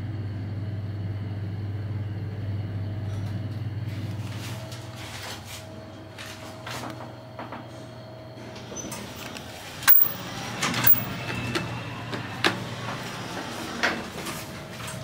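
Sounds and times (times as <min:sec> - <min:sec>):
elevator low hum: 0:00.0 - 0:15.0
elevator doors sliding open: 0:06.3 - 0:15.0.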